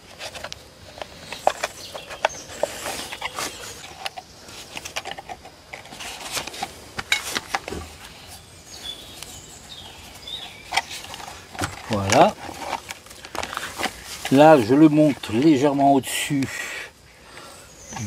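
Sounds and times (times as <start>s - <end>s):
plastic pot clicking and rustling: 0.0s - 8.1s, 9.1s - 16.5s.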